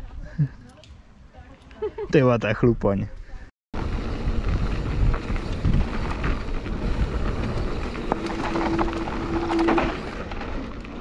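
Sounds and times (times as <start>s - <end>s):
wind buffeting microphone: 3.8s - 10.1s
bike clicks and rattles: 3.8s - 11.0s
bike tyre rumble on dirt: 3.8s - 11.0s.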